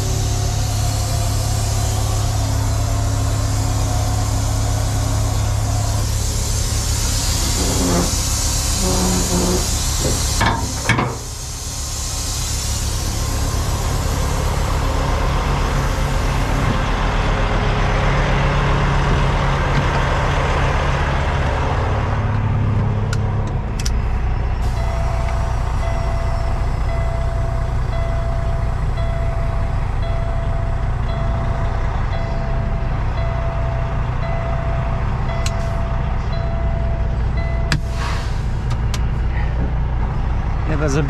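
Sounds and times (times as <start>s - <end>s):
air hiss: 0.0s - 16.6s, 37.8s - 38.7s
truck diesel engine running: 0.0s - 41.0s
regular beeping tone: 24.8s - 37.8s.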